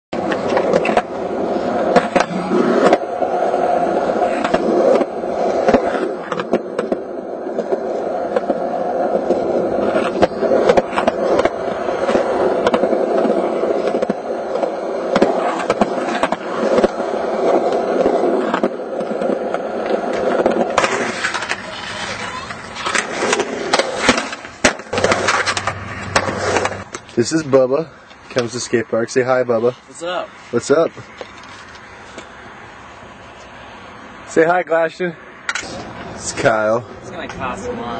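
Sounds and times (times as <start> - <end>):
skateboard wheels rolling on concrete: 0.1 - 37.9
skateboard clicks and knocks: 0.2 - 27.2.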